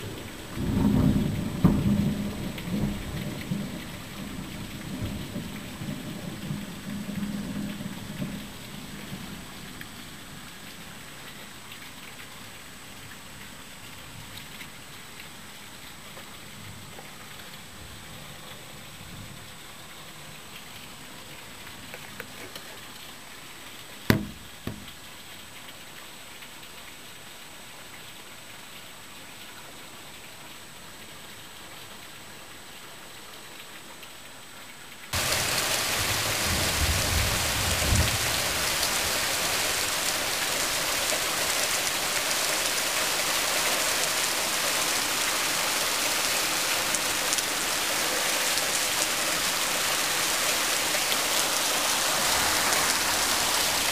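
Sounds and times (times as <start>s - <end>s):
heavy rain pouring: 0.0s - 53.9s
sharp knock: 24.1s - 24.9s.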